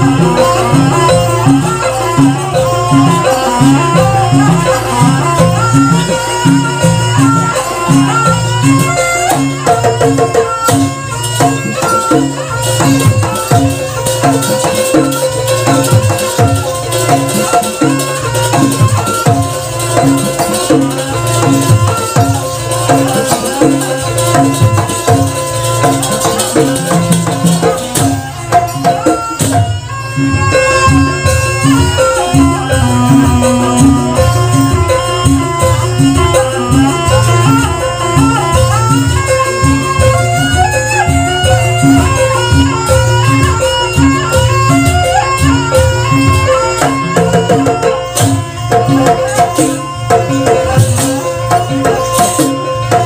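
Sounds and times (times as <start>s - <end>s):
gong-chime percussion: 0.0s - 53.0s
hand drums: 0.0s - 53.0s
long held note: 30.2s - 37.8s.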